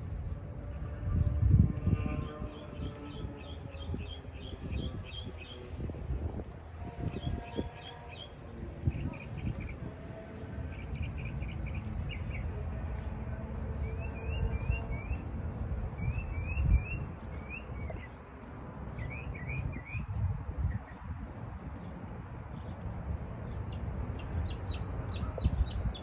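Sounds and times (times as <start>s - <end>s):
low rumble: 0.0s - 7.8s
songbirds chirping: 0.0s - 26.0s.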